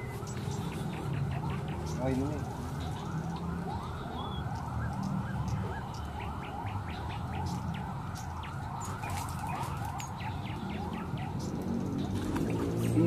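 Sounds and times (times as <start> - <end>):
water sloshing and gurgling: 11.9 - 13.0.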